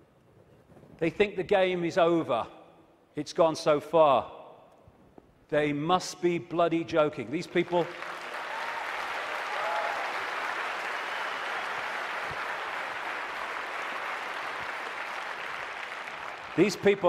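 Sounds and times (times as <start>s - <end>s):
audience applauding: 7.4s - 17.0s.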